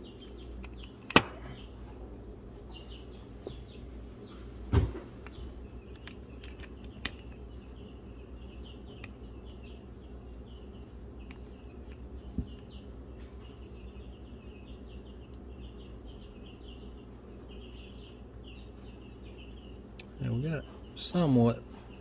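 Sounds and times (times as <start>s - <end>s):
low steady hum: 0.0s - 22.0s
rapid high chirping: 5.3s - 21.0s.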